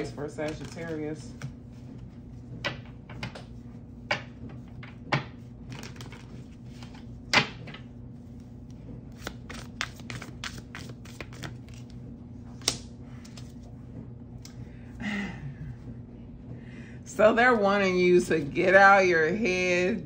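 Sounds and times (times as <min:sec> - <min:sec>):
cards being shuffled: 0:00.2 - 0:02.0, 0:05.7 - 0:13.7.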